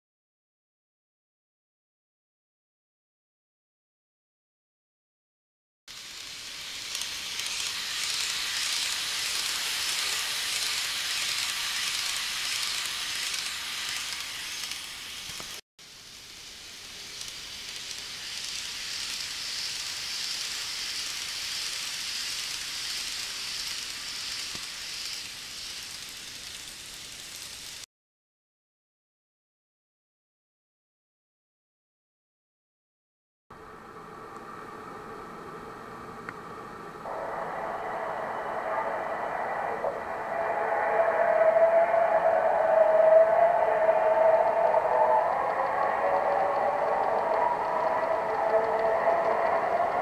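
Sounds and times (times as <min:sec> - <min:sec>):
model trains whirring on track: 0:05.9 - 0:27.9, 0:33.6 - 0:50.0.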